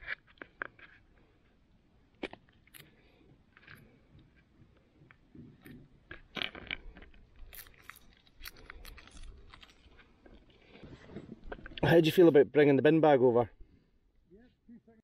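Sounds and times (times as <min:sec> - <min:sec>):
crinkle of papery garlic skin: 0:06.4 - 0:10.6.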